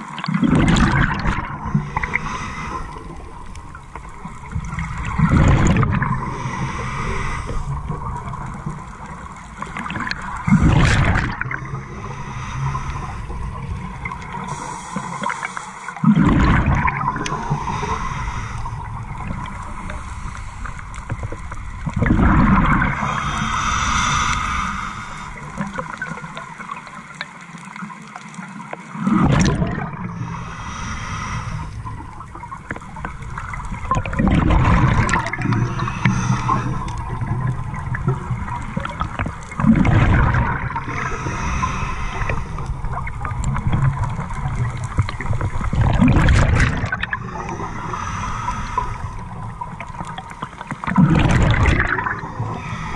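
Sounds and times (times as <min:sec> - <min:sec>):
exhaled bubbles rushing: 0:00.1 - 0:12.4, 0:15.9 - 0:27.2, 0:28.8 - 0:30.5, 0:31.5 - 0:52.9
regulator hiss on inhale: 0:01.6 - 0:04.2, 0:06.1 - 0:07.9, 0:11.7 - 0:16.0, 0:17.0 - 0:21.4, 0:22.8 - 0:26.4, 0:30.1 - 0:33.5, 0:35.0 - 0:37.7, 0:40.7 - 0:43.3, 0:47.0 - 0:50.8, 0:52.0 - 0:52.9.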